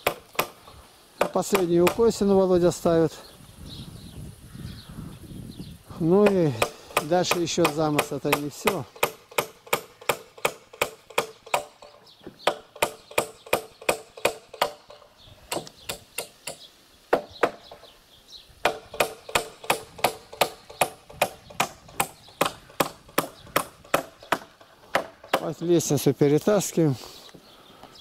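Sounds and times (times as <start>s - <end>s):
hammer driving nail into wood: 6.2s - 17.6s.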